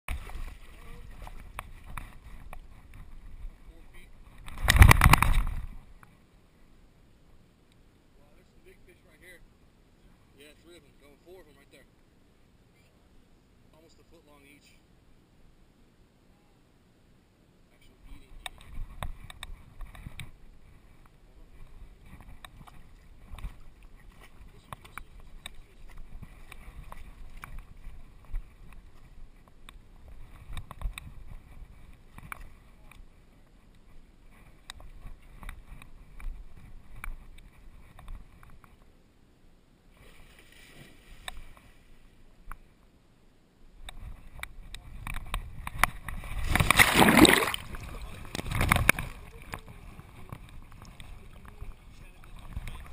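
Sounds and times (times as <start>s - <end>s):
water splashing and sloshing: 0.1s - 3.6s, 40.0s - 42.0s, 45.1s - 52.9s
wind and jostling on microphone: 0.1s - 6.4s, 17.8s - 39.0s, 43.7s - 52.9s
dog splashing through water: 46.4s - 48.0s.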